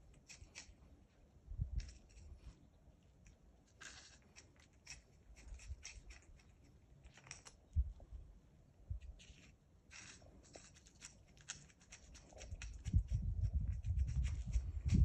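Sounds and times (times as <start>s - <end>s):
teeth clicking and scraping shell: 0.0s - 0.8s, 3.2s - 7.8s, 9.0s - 15.0s.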